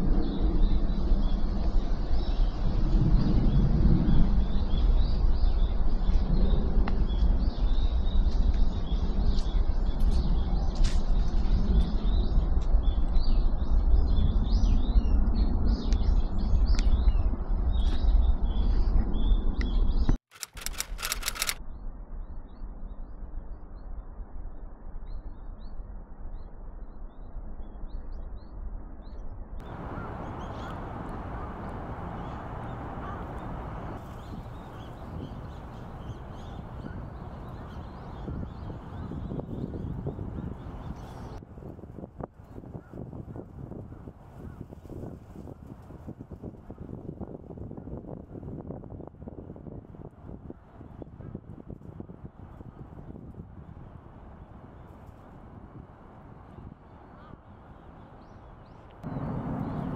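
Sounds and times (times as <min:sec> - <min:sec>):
small birds chirping: 0:29.6 - 0:41.4, 0:57.2 - 0:59.9.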